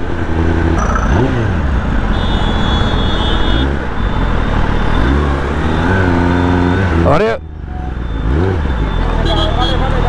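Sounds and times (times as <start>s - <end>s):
motorcycle engine at low revs: 0.0s - 3.0s
wind and road noise: 0.0s - 10.0s.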